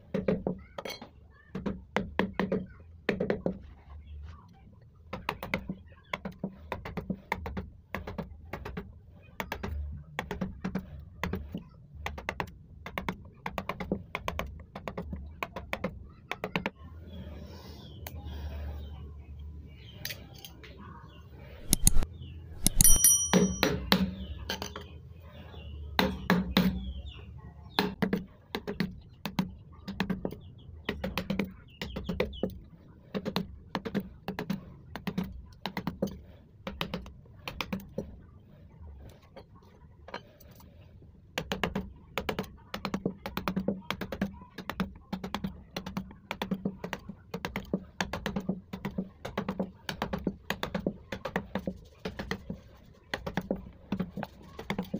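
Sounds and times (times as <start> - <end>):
chisel metallic clink: 21.6 - 22.0, 22.6 - 24.0
mallet striking chisel: 21.6 - 22.0, 22.6 - 23.8.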